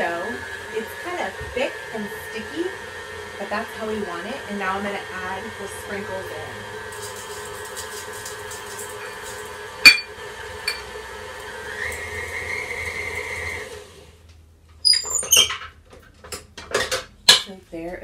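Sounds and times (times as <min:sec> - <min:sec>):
stand mixer running: 0:00.0 - 0:14.2.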